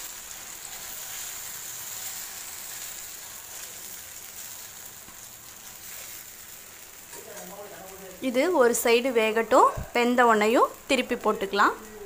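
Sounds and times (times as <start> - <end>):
batter sizzling on griddle: 0.0 - 12.0.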